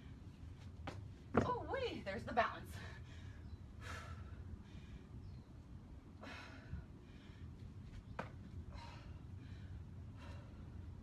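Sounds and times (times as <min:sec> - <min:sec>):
woman breathing heavily: 0:02.6 - 0:11.0.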